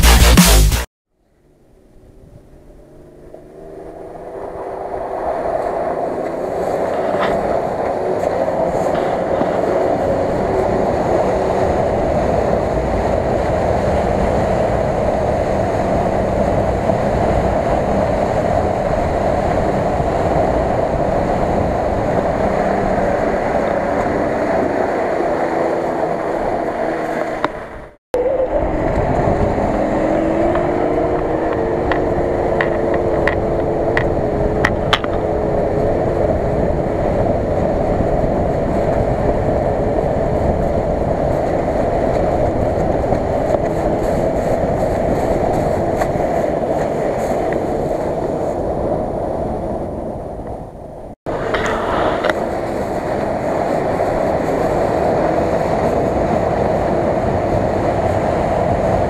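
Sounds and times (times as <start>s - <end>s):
engine working hard: 1.8s - 48.0s.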